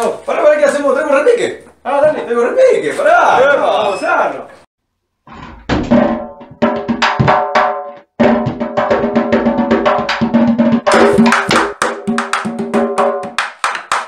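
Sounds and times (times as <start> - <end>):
hand drums played with sticks: 5.9 - 14.0.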